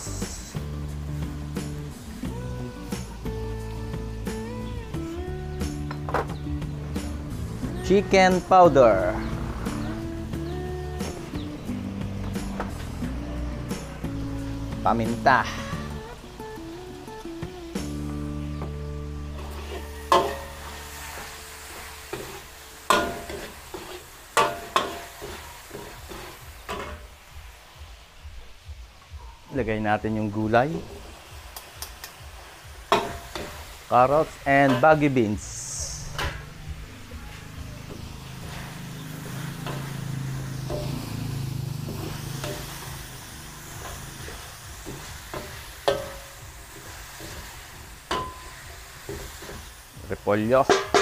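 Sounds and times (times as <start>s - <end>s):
meat sizzling: 0.0s - 29.1s, 30.2s - 51.0s
spatula clanking on wok: 19.7s - 20.7s, 22.1s - 27.0s, 32.9s - 33.6s, 34.6s - 35.0s, 43.8s - 49.7s, 50.7s - 51.0s
metal spatula knocking and scraping: 50.7s - 51.0s.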